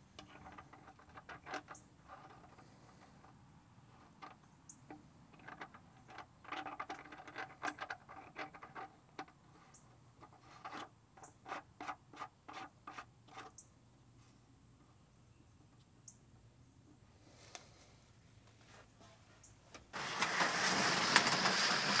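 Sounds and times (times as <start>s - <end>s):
fingers clicking and scraping fitting: 4.1s - 13.6s.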